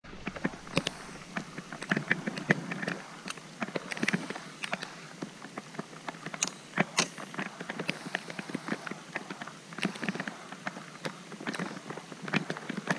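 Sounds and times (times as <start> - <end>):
rain falling on water: 0.0 - 12.9.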